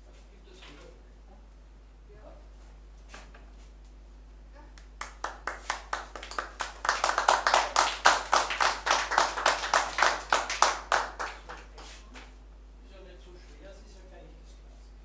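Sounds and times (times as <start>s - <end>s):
small group clapping: 4.7s - 12.4s.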